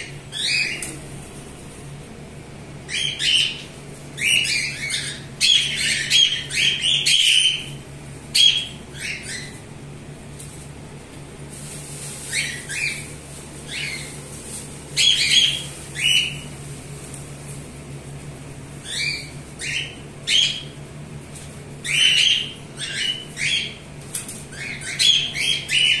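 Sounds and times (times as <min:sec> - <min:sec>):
cockatiels squawking: 0:00.0 - 0:01.0, 0:02.9 - 0:09.6, 0:12.2 - 0:14.2, 0:14.9 - 0:16.5, 0:18.8 - 0:20.8, 0:21.8 - 0:26.0
steady low hum: 0:00.0 - 0:26.0.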